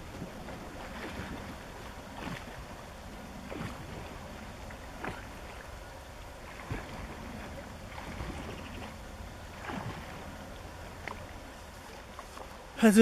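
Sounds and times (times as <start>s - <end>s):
person swimming splashing: 0.0s - 12.6s.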